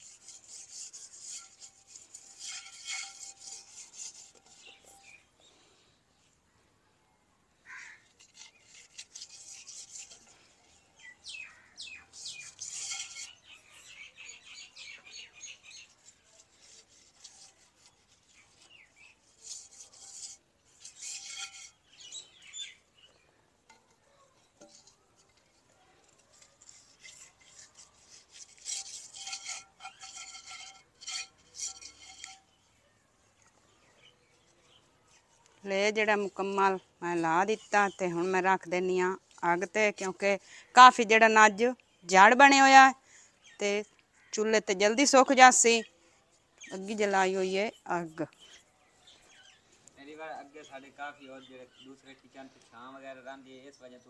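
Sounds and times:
hand smearing mud on metal pot: 0.0s - 5.2s, 8.0s - 11.0s, 12.0s - 13.9s, 15.6s - 22.4s, 23.7s - 36.6s.

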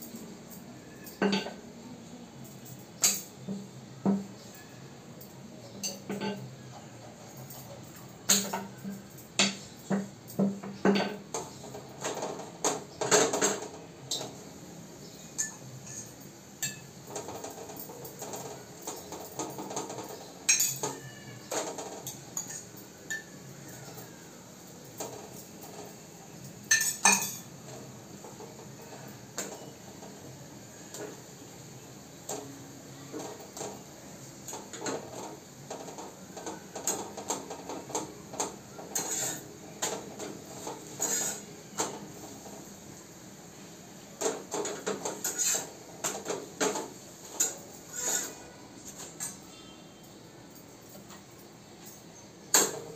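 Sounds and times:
steel utensils clinking: 0.0s - 1.6s, 5.6s - 14.4s, 15.0s - 29.8s, 34.4s - 42.2s, 44.2s - 52.9s.

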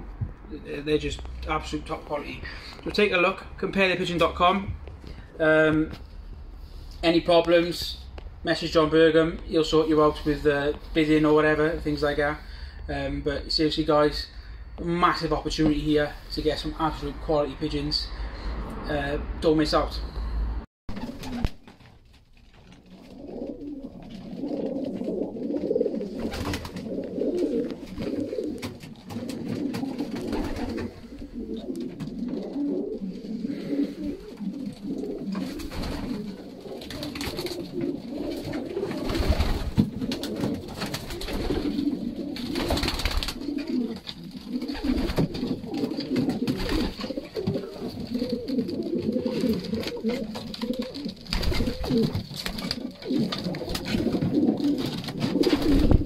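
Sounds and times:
pigeons cooing: 22.8s - 56.0s
clatter of wings: 38.3s - 47.2s.

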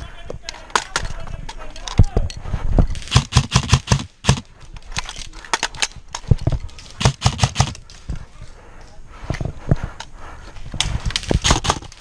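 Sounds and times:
airsoft guns firing: 3.0s - 4.5s, 7.0s - 7.8s, 11.3s - 12.0s.

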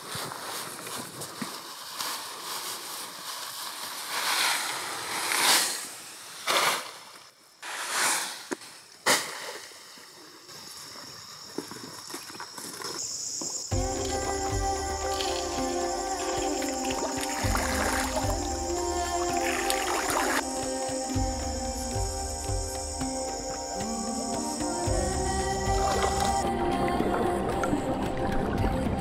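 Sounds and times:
cut grass rustling and swishing: 0.0s - 9.7s
music: 13.7s - 29.0s.

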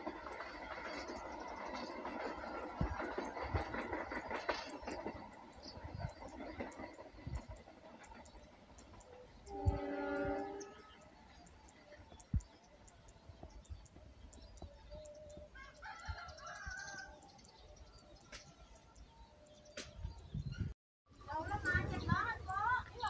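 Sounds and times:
distant two-tone train horn: 9.4s - 11.2s.

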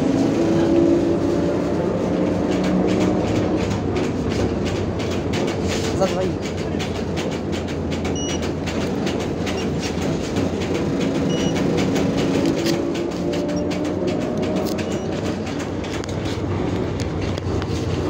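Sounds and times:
road rumble: 0.0s - 18.0s
rattles from bus body: 0.1s - 18.0s
electric traction drive whining: 10.5s - 18.0s.

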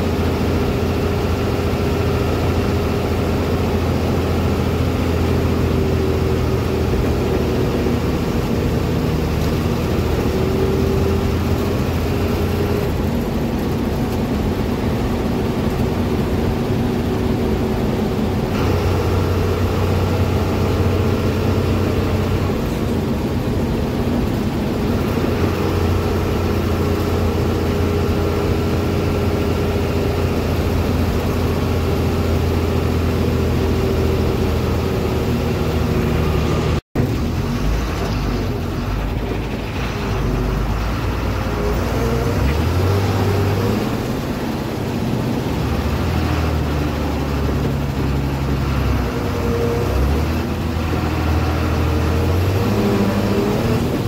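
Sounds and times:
bus engine and road drone: 0.0s - 54.0s.

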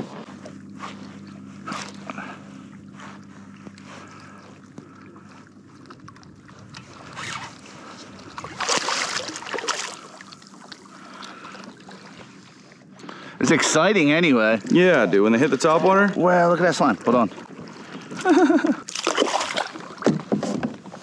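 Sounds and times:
steady low hum: 0.0s - 20.0s
water splashing against a kayak: 0.0s - 21.0s.

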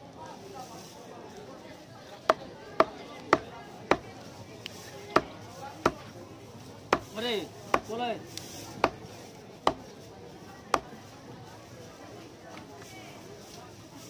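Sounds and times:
knife chopping on wooden block: 2.3s - 4.1s, 5.1s - 6.0s, 6.9s - 7.9s, 8.8s - 9.0s, 9.6s - 9.8s.

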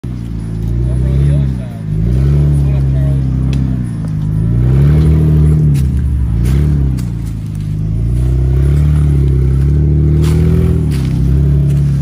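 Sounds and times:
engine revving: 0.0s - 12.0s.

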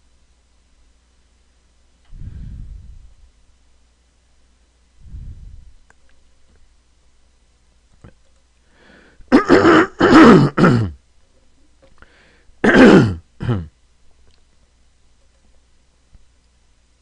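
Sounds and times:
man clearing his throat: 9.3s - 11.0s, 12.6s - 13.8s.

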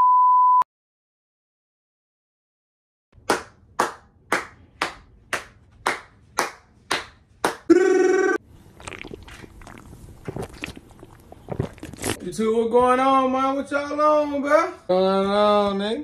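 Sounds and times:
hands clapping with room echo: 3.2s - 7.7s.

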